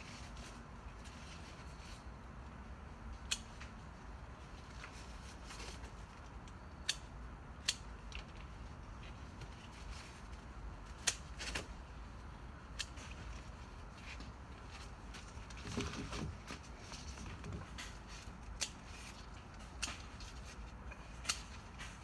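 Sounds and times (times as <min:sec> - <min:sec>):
tomatoes snapping off vines: 0:11.0 - 0:11.7.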